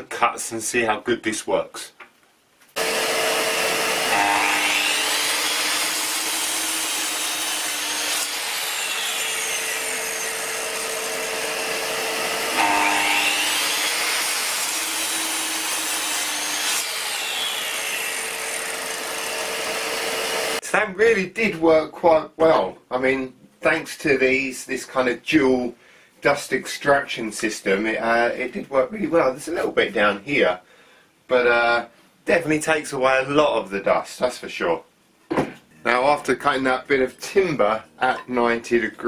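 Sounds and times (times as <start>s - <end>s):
mitre saw cutting timber: 2.8s - 20.6s.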